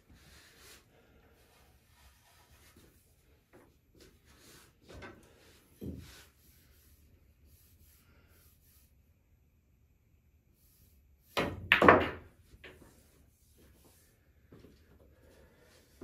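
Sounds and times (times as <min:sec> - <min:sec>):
faint rubbing and handling: 0:00.0 - 0:09.1, 0:12.7 - 0:16.0.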